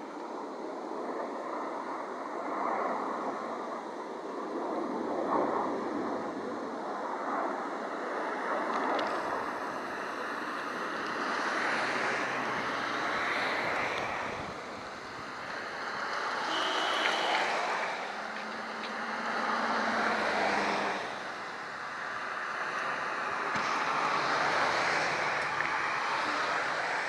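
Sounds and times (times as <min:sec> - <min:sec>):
distant jet roar: 0:00.0 - 0:27.0.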